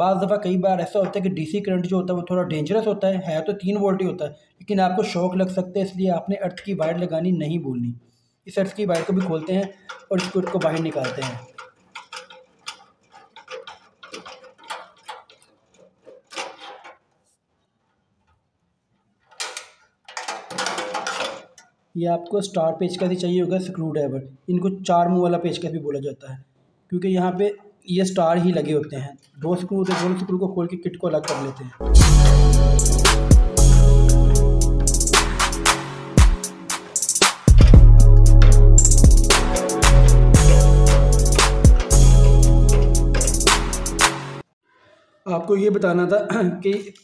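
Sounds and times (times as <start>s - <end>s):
held bass notes: 31.8s - 36.4s, 37.5s - 44.2s
drum hits: 31.8s - 44.2s.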